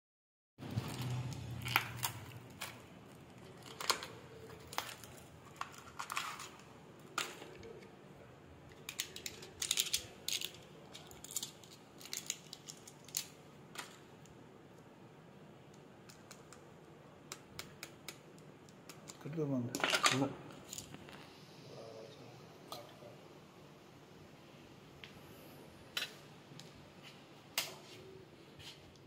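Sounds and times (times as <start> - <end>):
medicine packets crinkling: 8.7 - 14.0.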